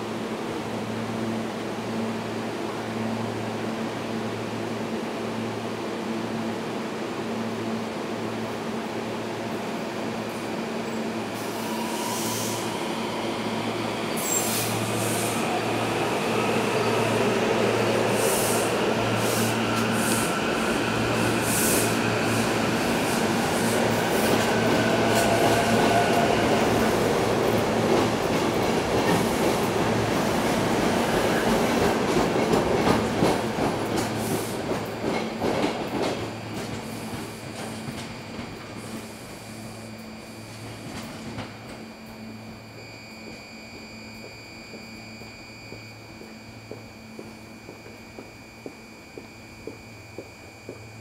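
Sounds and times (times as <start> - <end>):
train wheels rumbling on rails: 10.8 - 39.7, 44.2 - 51.0
faint climbing whine: 39.4 - 51.0.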